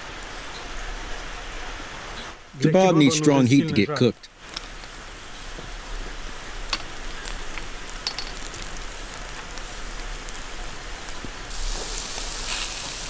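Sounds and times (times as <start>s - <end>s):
meat sizzling over charcoal: 2.3s - 13.0s.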